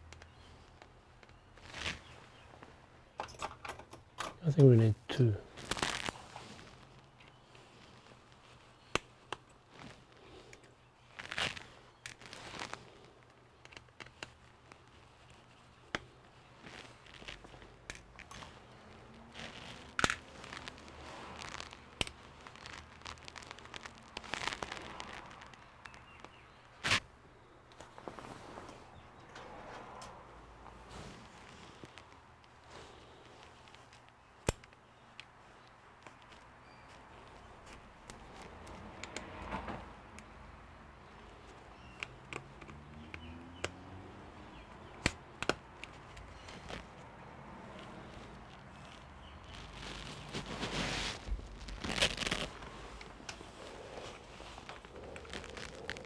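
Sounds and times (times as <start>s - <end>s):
gloved hands rustling: 0.0s - 3.2s, 4.4s - 56.0s
tools clicking and knocking: 3.2s - 4.4s.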